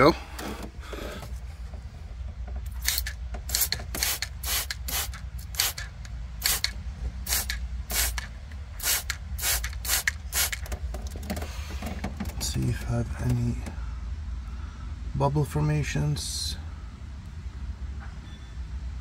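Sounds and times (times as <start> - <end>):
spray bottle squirting: 2.7 - 10.8.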